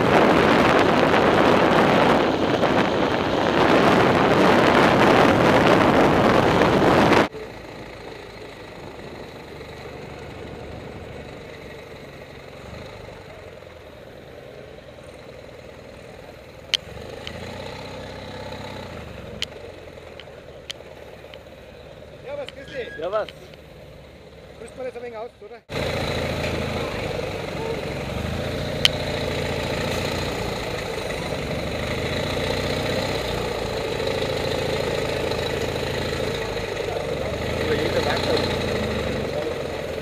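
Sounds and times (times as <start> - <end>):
wind rushing over microphone: 0.0 - 7.3
motorcycle engine running: 0.0 - 40.0.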